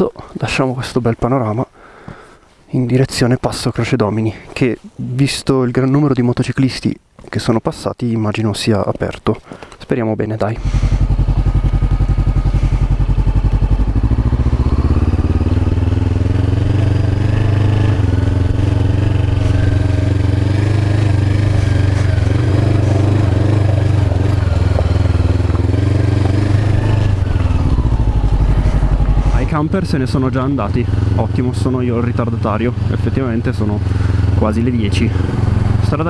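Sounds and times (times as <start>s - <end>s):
motorcycle engine running: 10.6s - 36.0s.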